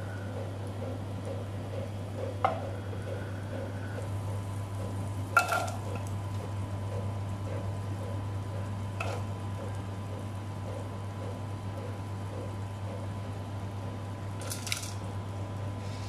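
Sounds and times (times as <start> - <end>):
onions clattering into pot: 5.4 - 6.1, 14.4 - 15.0.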